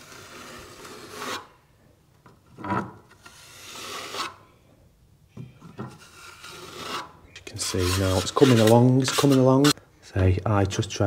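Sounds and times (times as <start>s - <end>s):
trowel scraping filler on wall: 0.0s - 1.5s, 2.6s - 4.4s, 5.9s - 9.8s.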